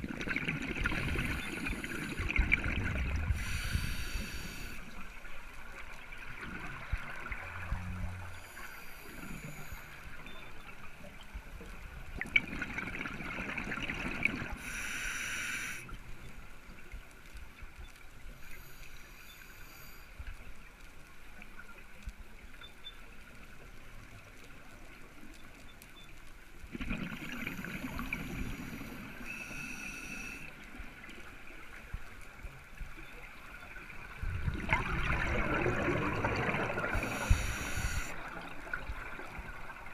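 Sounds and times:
watery hiss: 0.9 - 2.6, 3.3 - 5.0, 8.3 - 10.2, 14.5 - 15.9, 18.4 - 20.1, 27.3 - 30.5, 36.0 - 38.2
regulator inhalation hiss: 3.3 - 4.9, 8.4 - 10.1, 14.6 - 15.9, 18.4 - 20.2, 27.6 - 30.5, 36.9 - 38.2
bubbling exhalations: 34.4 - 38.0.

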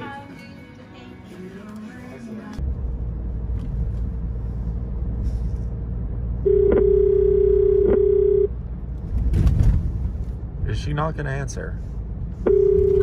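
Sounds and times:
car cabin road rumble: 1.3 - 13.0
phone ringback tone: 6.4 - 8.5, 12.5 - 13.0.

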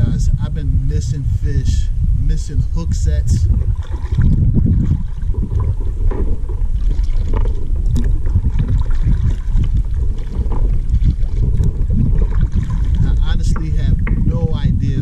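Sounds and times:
paddle splashing in water: 3.4 - 14.4.

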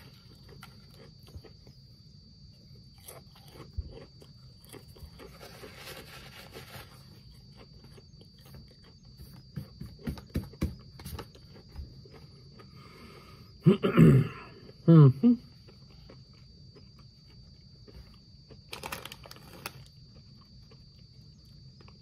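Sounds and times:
crunching potato chips: 0.0 - 1.8, 2.7 - 9.2, 15.6 - 22.0
chip bag rustling: 4.8 - 7.6, 18.6 - 20.0.

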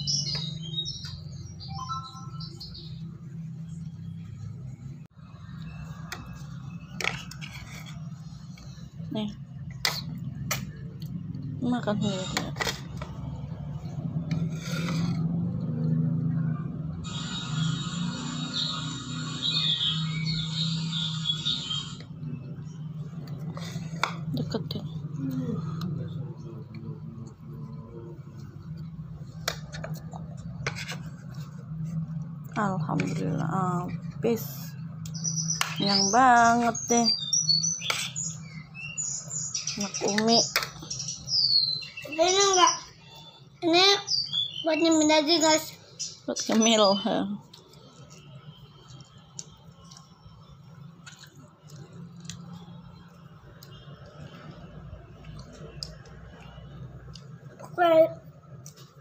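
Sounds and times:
metal spoon scraping plastic plate: 6.9 - 8.3, 14.3 - 15.4
child chewing softly: 47.4 - 52.6.

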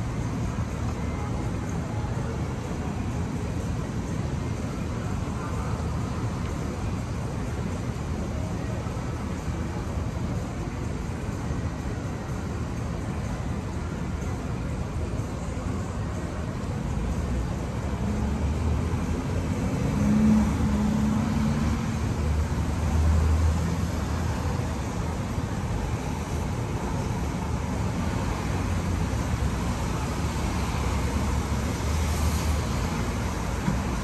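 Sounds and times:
street traffic hum: 0.0 - 34.0.

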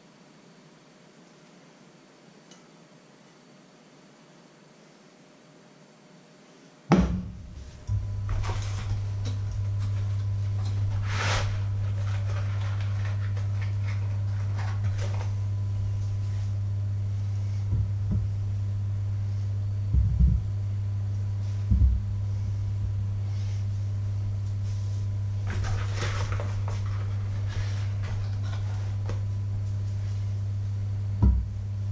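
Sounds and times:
induction hob humming: 6.9 - 31.9.

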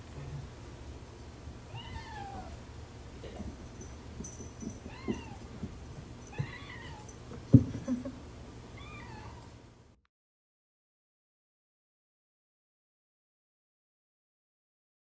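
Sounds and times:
cat meowing: 1.7 - 2.6, 4.9 - 5.4, 6.3 - 7.1, 8.8 - 9.5.

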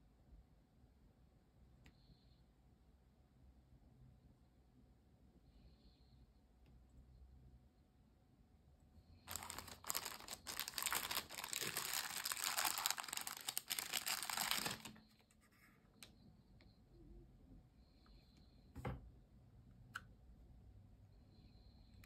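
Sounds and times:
plastic bag crinkling: 9.3 - 15.0.

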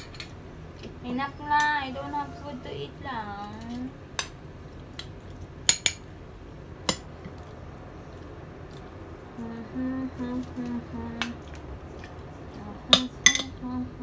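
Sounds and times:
person humming low notes: 9.3 - 11.4.

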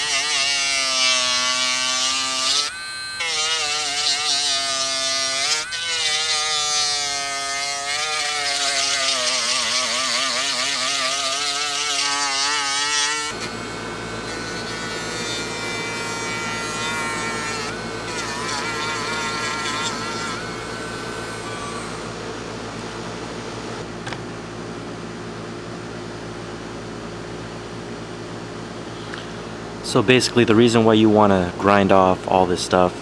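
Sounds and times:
rotary tool grinding: 0.0 - 22.1.

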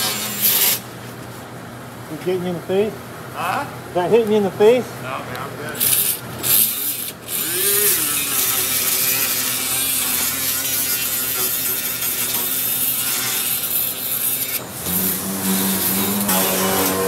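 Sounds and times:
power sander whine on metal: 5.9 - 17.0.

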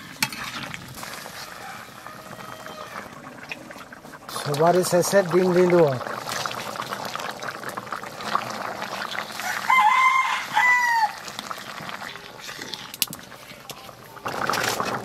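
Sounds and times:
curry bubbling in a wok: 0.0 - 15.0
rooster crowing: 1.3 - 3.2, 9.4 - 11.3.

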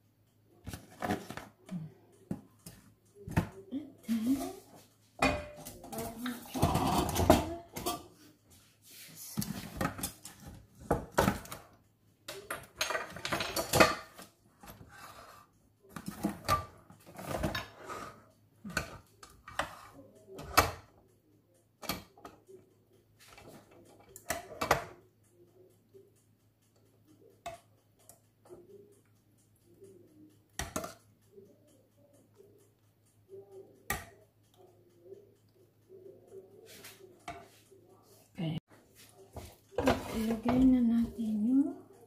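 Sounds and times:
metal kitchenware clinking: 5.2 - 8.2, 12.3 - 20.9.

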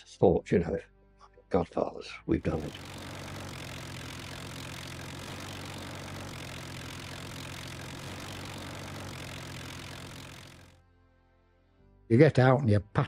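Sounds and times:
aircraft piston engines droning: 2.4 - 10.8.

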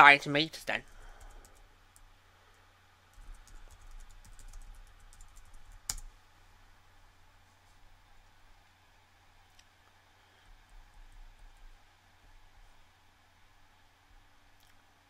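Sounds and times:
computer keyboard typing: 0.8 - 2.1, 3.1 - 6.1.

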